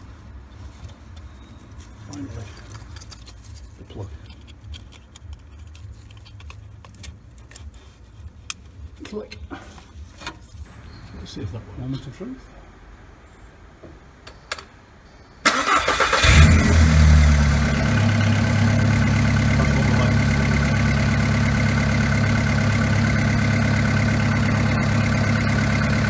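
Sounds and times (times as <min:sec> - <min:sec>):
car engine idling: 0:15.4 - 0:26.0.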